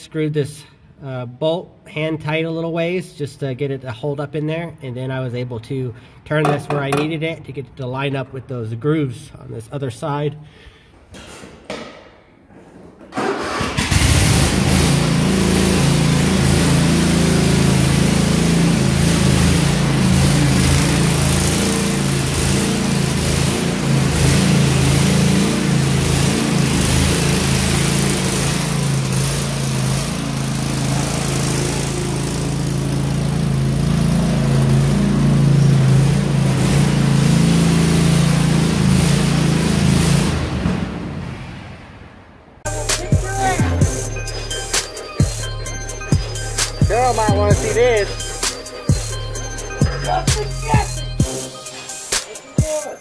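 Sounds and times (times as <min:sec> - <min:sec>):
lawn mower engine running: 0:13.2 - 0:40.6, 0:42.7 - 0:52.7.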